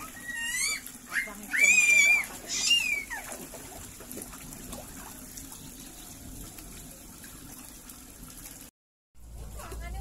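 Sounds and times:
children splashing in water: 0.0s - 5.6s
waterfall pouring into pond: 0.0s - 8.7s.

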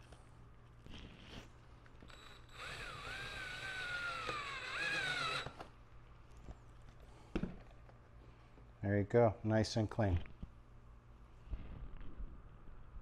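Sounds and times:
cordless drill motor whine: 2.1s - 5.7s.

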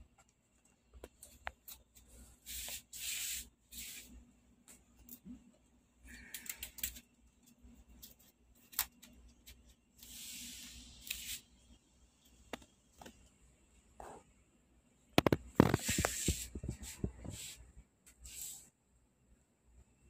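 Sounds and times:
sheet sliding hiss: 2.2s - 4.2s, 10.0s - 11.6s, 15.6s - 18.7s
plastic sheet rustling: 15.4s - 17.5s.

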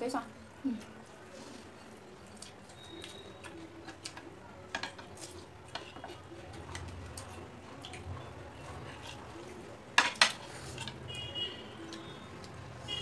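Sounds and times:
chewing smacks: 2.2s - 4.3s, 4.9s - 9.7s, 11.8s - 12.6s
cutlery clicking on plates: 3.8s - 6.9s, 10.0s - 11.0s.

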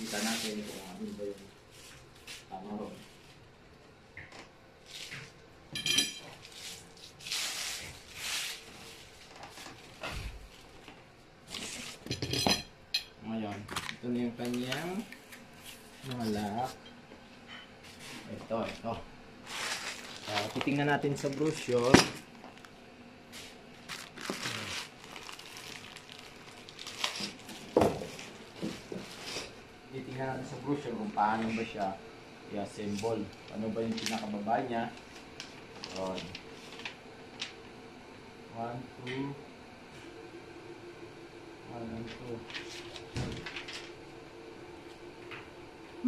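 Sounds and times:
plastic packaging crinkling: 19.4s - 22.8s, 23.8s - 28.6s, 33.6s - 37.6s.

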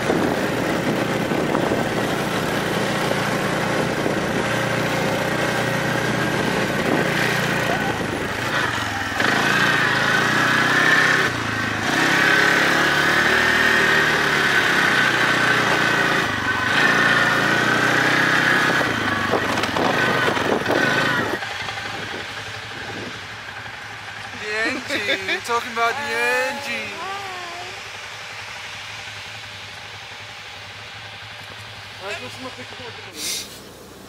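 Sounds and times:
atv engine revving: 0.0s - 33.8s.

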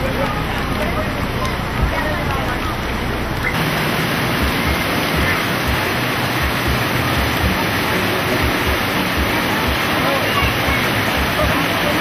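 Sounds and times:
loud rushing hiss: 3.6s - 12.0s.

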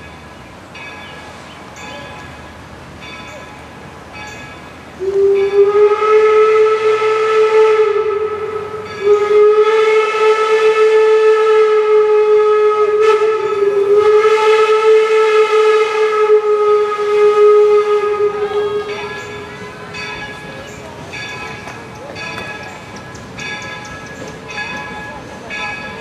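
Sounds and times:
steam whistle blasts: 5.0s - 20.0s.

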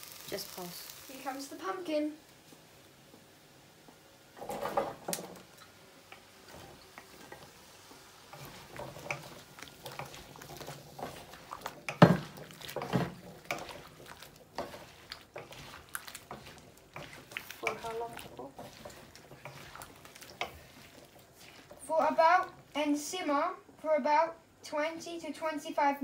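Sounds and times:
utensils knocking and scraping a wok: 4.4s - 22.8s.

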